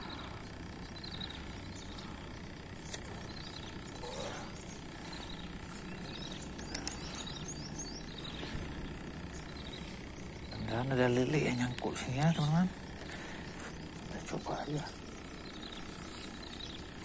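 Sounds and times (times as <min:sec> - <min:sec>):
faint high bird chirps: 0:00.0 - 0:12.7
outdoor background noise: 0:00.0 - 0:17.0.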